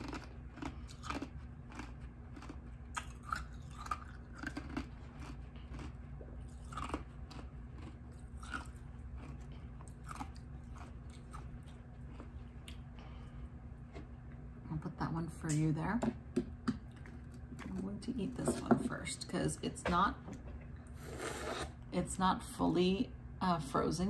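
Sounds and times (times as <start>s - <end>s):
crunchy chewing: 0.0s - 14.4s
faint low hum: 0.0s - 24.0s.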